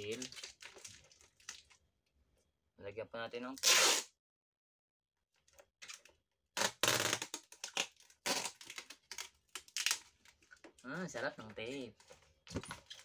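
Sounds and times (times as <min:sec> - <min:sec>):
packing tape pulled off roll: 0:03.6 - 0:04.1, 0:06.6 - 0:10.0
tape crackling on plastic lid: 0:05.8 - 0:10.8.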